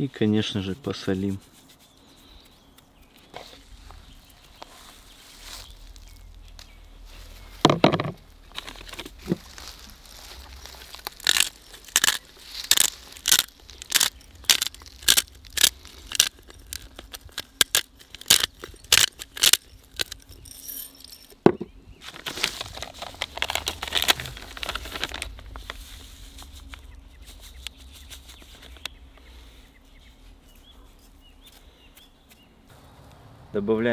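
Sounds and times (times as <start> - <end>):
salt sprinkling rustle: 8.5 - 21.2, 22.0 - 29.6
pepper mill grinding: 8.5 - 21.4.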